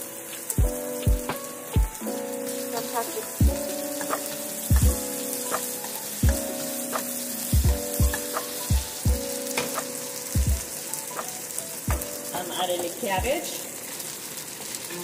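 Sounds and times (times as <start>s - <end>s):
food sizzling in a wok: 0.0s - 15.0s.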